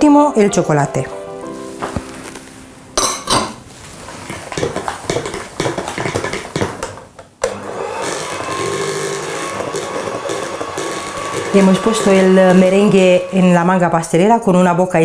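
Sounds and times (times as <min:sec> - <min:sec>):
electric hand mixer whirring: 0:07.4 - 0:14.4.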